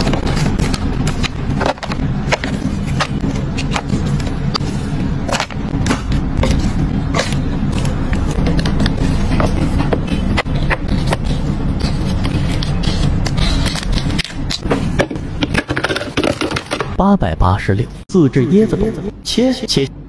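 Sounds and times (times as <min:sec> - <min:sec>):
steady low rumble: 0:00.0 - 0:15.6.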